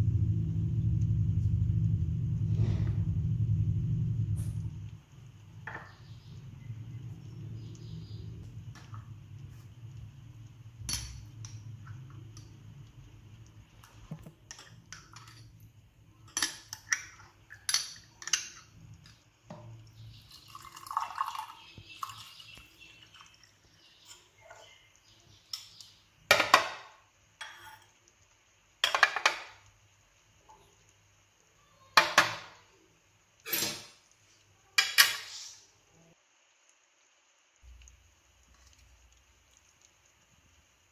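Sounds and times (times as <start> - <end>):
water pouring into a glass: 20.0 - 24.0.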